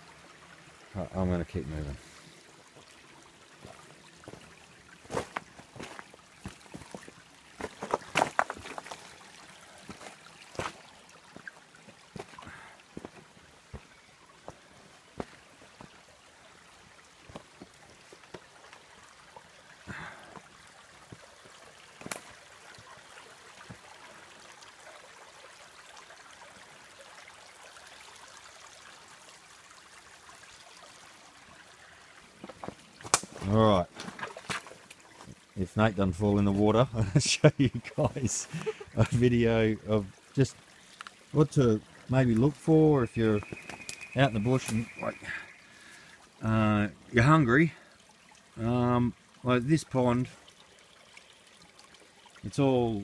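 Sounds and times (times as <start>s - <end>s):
creek trickling over stones: 0.0s - 53.0s
footsteps on leaf litter and rocks: 4.3s - 9.2s, 9.9s - 10.8s, 43.4s - 44.8s.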